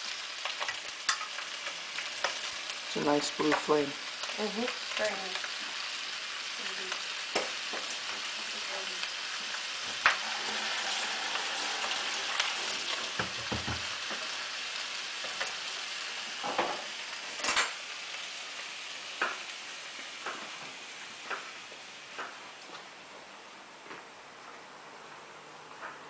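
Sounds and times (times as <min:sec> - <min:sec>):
sausages sizzling in a pan: 0:00.0 - 0:23.4.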